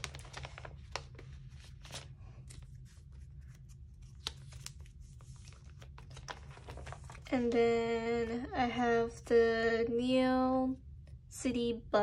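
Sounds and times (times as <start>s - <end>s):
plastic sleeves rustling: 0.0s - 7.8s.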